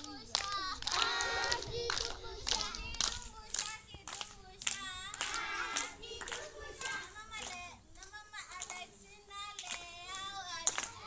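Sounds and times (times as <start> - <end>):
children singing: 0.0 - 3.0, 4.9 - 7.4
hands clapping: 0.0 - 8.9, 9.5 - 11.0.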